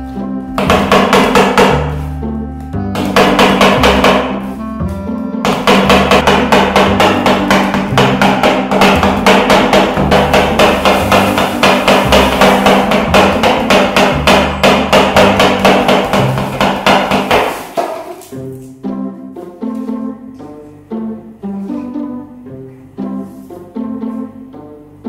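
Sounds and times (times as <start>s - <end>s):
background music with bass: 0.0s - 17.5s.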